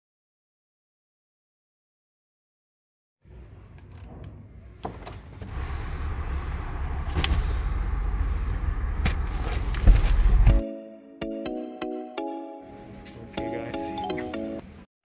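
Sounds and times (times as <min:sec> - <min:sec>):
low rumble: 0:05.5 - 0:10.6.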